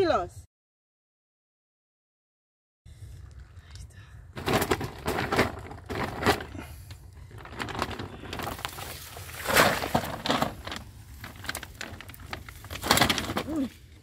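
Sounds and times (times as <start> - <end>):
low steady rumble: 2.9 - 12.9
plastic sack and reeds rustling: 4.4 - 14.0.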